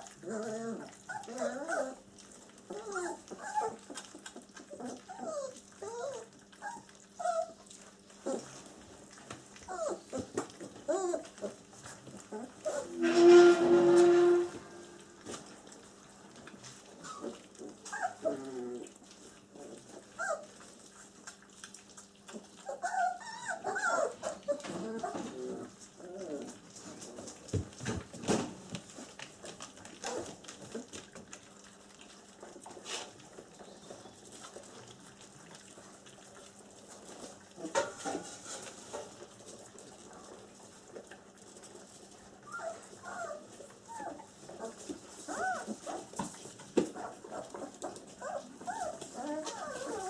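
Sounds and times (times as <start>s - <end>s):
puppies whimpering and squeaking: 0.0s - 8.6s, 9.5s - 15.4s, 16.8s - 27.4s, 28.9s - 35.8s, 42.4s - 46.3s, 46.9s - 50.0s.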